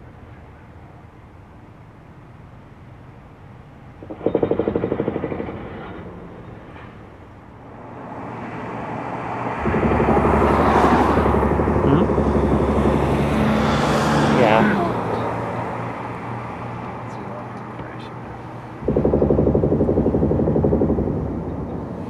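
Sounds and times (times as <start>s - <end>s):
low steady rumble: 0.0s - 8.0s, 9.4s - 14.5s, 17.8s - 22.0s.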